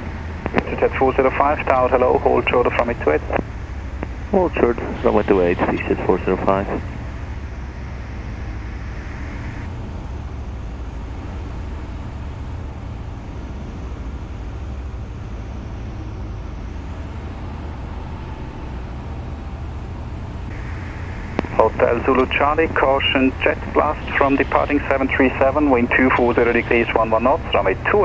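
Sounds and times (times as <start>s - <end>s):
aircraft engine and propeller droning: 0.0s - 28.0s
radio hiss: 0.5s - 6.9s, 20.5s - 28.0s.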